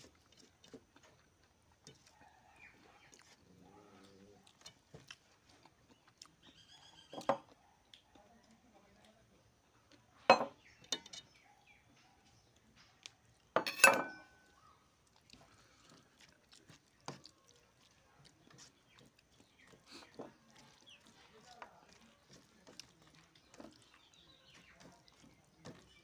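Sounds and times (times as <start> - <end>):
fingers mixing food: 0.0 - 26.0
steel bowl clinking on plate: 10.3 - 11.3, 13.6 - 14.5.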